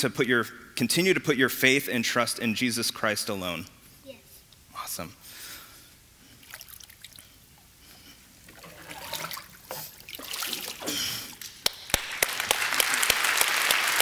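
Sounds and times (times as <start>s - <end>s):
water splashing and sloshing: 6.3s - 7.4s, 8.4s - 11.4s
hand claps and applause: 11.4s - 14.0s.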